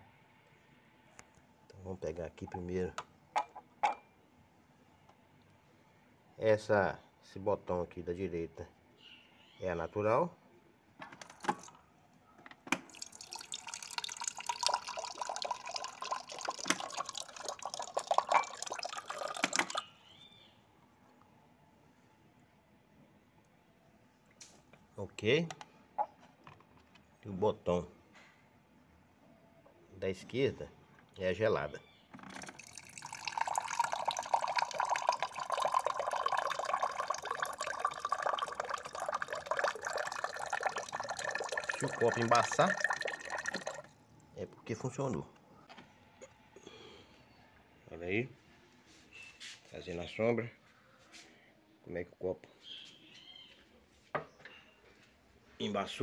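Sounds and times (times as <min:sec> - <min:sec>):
water pouring into glass jar: 0:12.8 - 0:19.9, 0:32.3 - 0:44.0.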